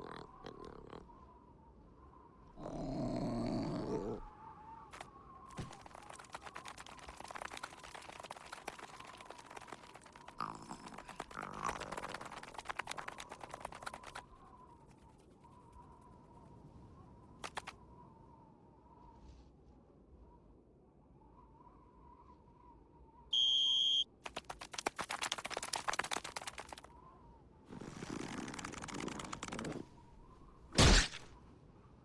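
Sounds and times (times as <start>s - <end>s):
cartoon ants grumbling: 0.0s - 1.0s, 2.6s - 4.3s, 8.2s - 14.2s
rapid tiny clicks: 4.9s - 14.3s, 17.4s - 17.8s, 24.2s - 26.9s, 28.0s - 29.9s.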